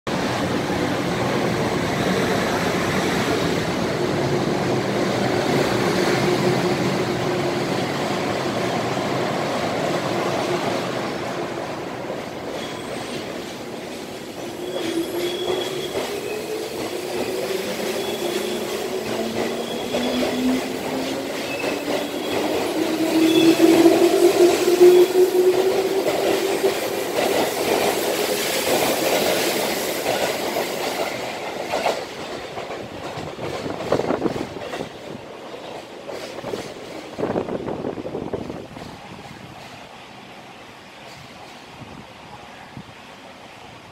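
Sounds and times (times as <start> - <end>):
train standing humming: 0.1 - 43.9
wheels squealing: 14.4 - 26.6.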